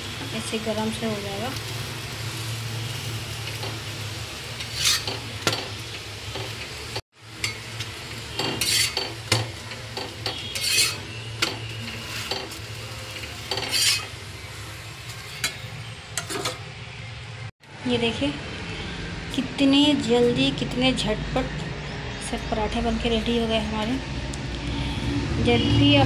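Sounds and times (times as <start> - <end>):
metal spatula scraping iron pan: 4.6 - 5.7, 8.3 - 14.2, 15.0 - 16.7.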